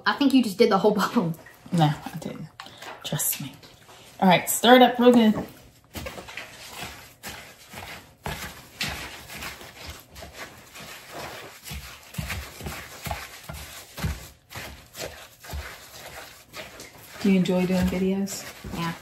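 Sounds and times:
spoon scraping snow cream: 5.9s - 19.0s.

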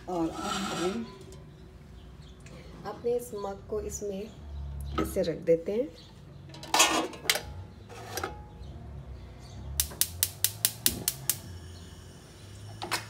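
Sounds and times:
mug scraping on steel stand: 0.1s - 1.3s, 7.9s - 8.4s
sharp clicks: 9.8s - 11.4s.

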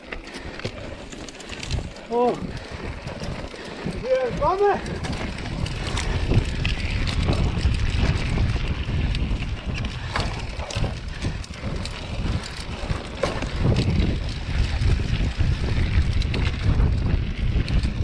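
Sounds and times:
bike clicks and rattles: 0.0s - 18.0s
tyres rumbling on dirt trail: 0.0s - 18.0s
wind rushing over microphone: 0.0s - 18.0s.

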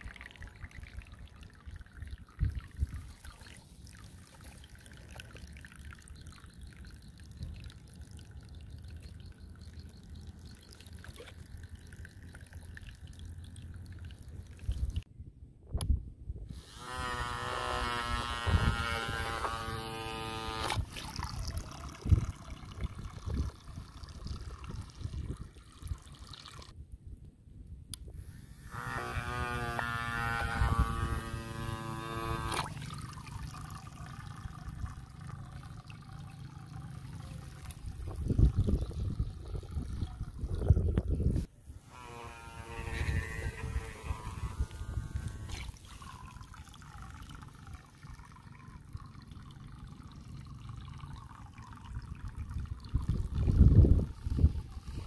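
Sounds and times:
small motor whirring: 16.5s - 22.2s, 28.2s - 34.6s, 41.8s - 47.4s.

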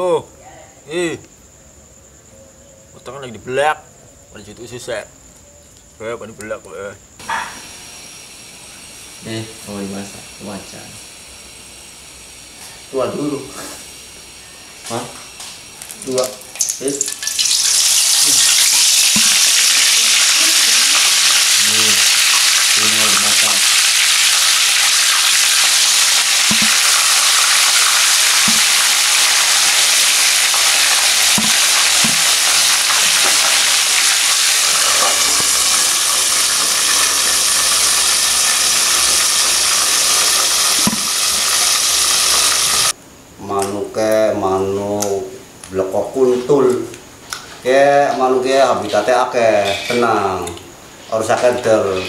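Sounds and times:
hot oil sizzling: 7.2s - 43.0s, 47.6s - 52.0s.

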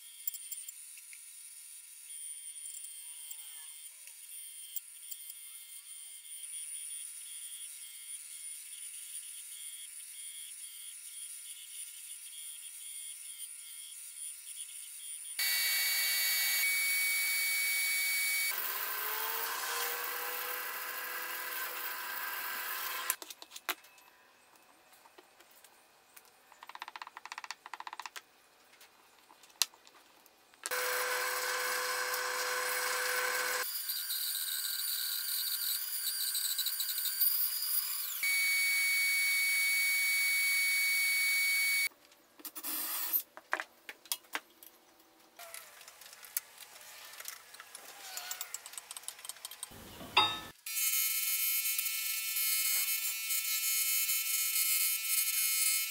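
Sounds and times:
disc sander running: 15.4s - 23.2s, 30.7s - 33.6s
power tools running: 15.4s - 23.2s, 30.7s - 33.7s.

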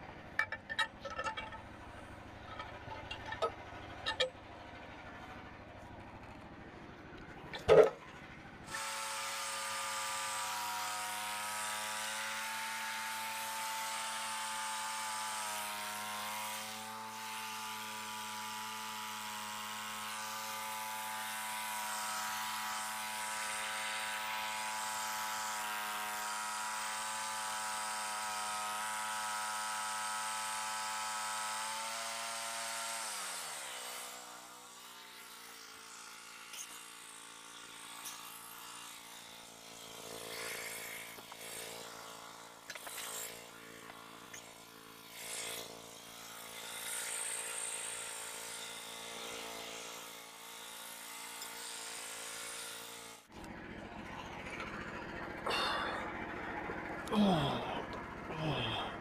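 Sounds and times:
bandsaw blade sawing a log: 0.0s - 4.4s, 7.5s - 59.0s
gas engine running: 0.0s - 8.8s, 53.3s - 59.0s.

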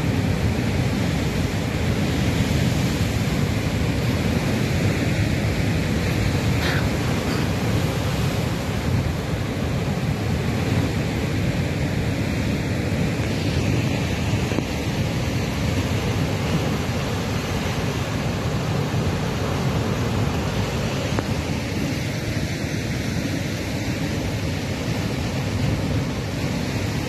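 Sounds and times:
surf breaking over rocks: 0.0s - 10.1s.

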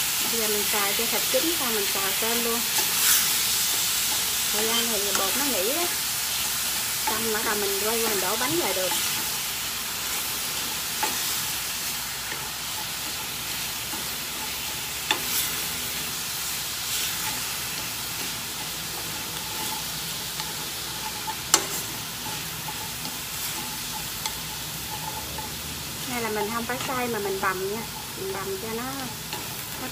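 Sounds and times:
meat and onion sizzling in oil: 0.0s - 29.9s
chopsticks clicking against pan: 20.4s - 25.6s.

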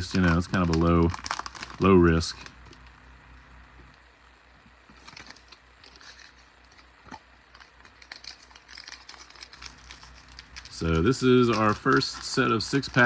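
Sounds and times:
small crackles and clicks: 0.0s - 3.0s, 4.9s - 13.0s
wrappers crinkling and rustling: 0.0s - 3.0s, 4.9s - 13.0s
faint low hum: 0.0s - 13.0s.

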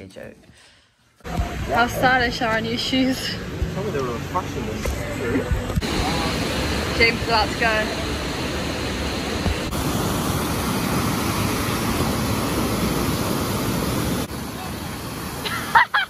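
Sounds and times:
rush of pumped water: 3.2s - 16.0s.

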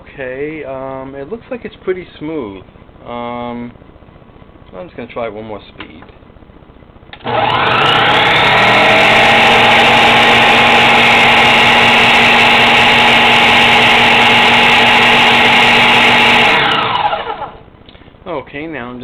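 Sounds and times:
blender motor running: 7.2s - 17.6s.

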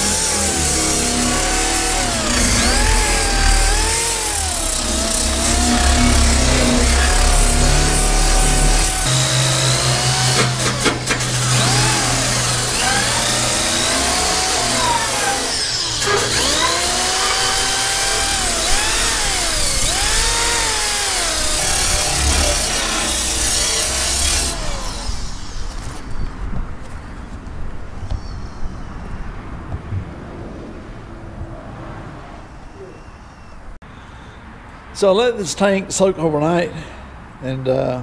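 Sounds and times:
electric drill wire brush scrubbing: 0.0s - 26.1s.

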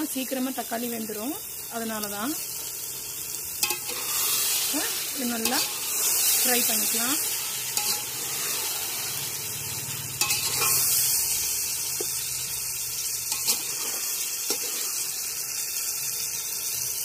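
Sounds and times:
onions and tomatoes sizzling in oil: 0.0s - 17.0s
metal spatula scraping a pot: 3.6s - 12.3s, 13.2s - 15.5s.

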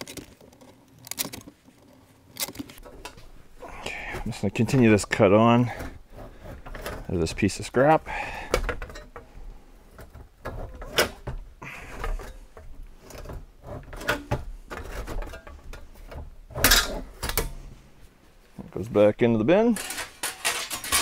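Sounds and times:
lever shear cutting sheet metal: 19.8s - 21.0s.

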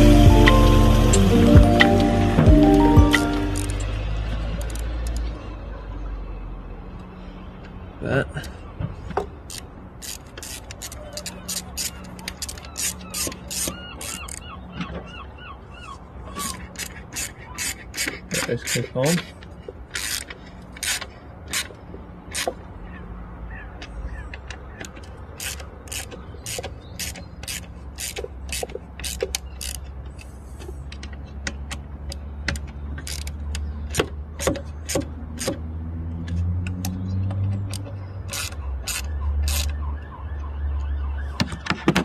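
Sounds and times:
ratchet spanner clicking: 3.1s - 5.3s, 9.4s - 14.4s, 16.4s - 19.3s, 19.9s - 22.6s, 24.4s - 39.8s.

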